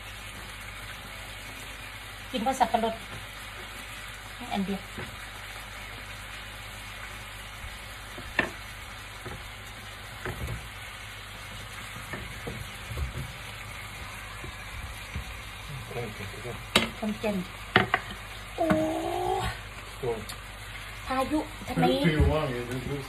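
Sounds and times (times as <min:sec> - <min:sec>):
food sizzling in a frying pan: 0:00.0 - 0:23.0
utensils knocking on pan and board: 0:08.1 - 0:08.6, 0:09.2 - 0:09.5, 0:10.1 - 0:10.8, 0:11.9 - 0:13.4, 0:16.7 - 0:17.1, 0:17.7 - 0:18.8.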